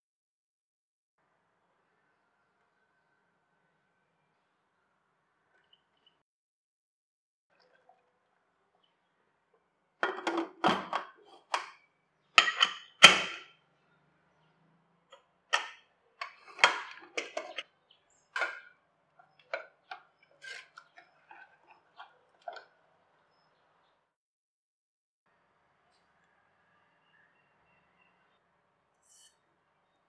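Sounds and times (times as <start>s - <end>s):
pressure cooker lid clinking: 12.4s - 13.4s
ladle tapping in a pot: 15.5s - 17.6s.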